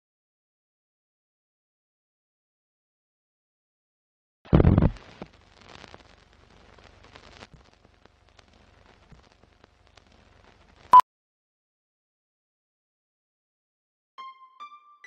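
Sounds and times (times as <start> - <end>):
film crackle and clicks: 4.5 - 11.0.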